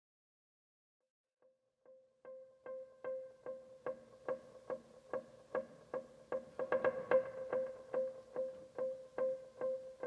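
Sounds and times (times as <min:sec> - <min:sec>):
plucked string instrument: 0:02.3 - 0:10.0.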